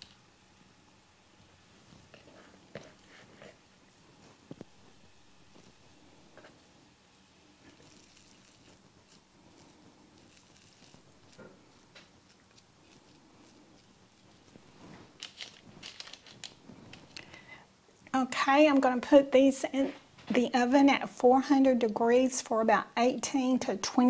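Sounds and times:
hands squishing dough: 7.6s - 15.8s.

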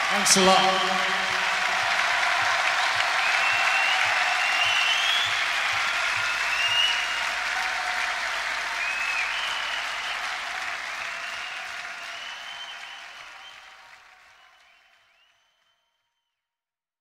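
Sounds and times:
audience applauding and cheering: 0.0s - 15.2s
shrill whistles: 1.8s - 7.2s, 8.8s - 10.4s, 11.2s - 13.7s, 14.4s - 15.8s.

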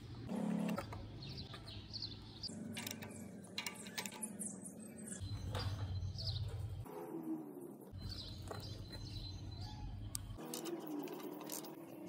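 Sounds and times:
birds chirping: 0.0s - 12.0s
metal engine parts handled: 2.6s - 4.5s, 10.4s - 12.0s
hand tools clicking and tapping: 2.6s - 4.6s.

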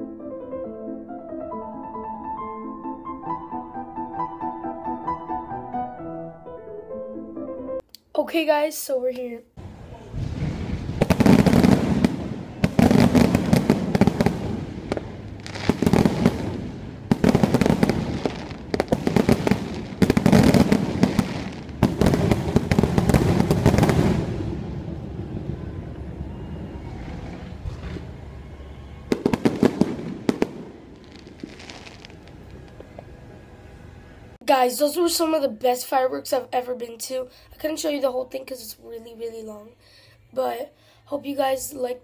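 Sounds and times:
fireworks bursting and crackling: 9.6s - 25.1s, 29.0s - 33.1s.

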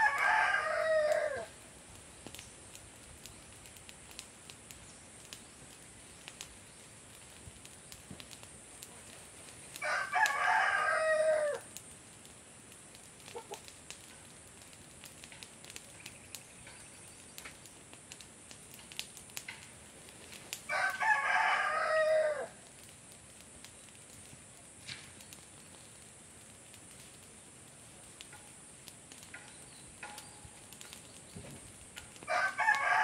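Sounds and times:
rooster crowing: 0.0s - 1.6s, 9.8s - 11.7s, 20.7s - 22.6s, 32.2s - 33.0s.

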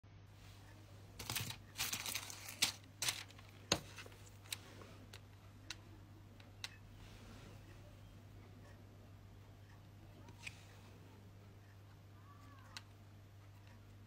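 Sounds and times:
plastic bag crinkling: 1.2s - 4.6s.

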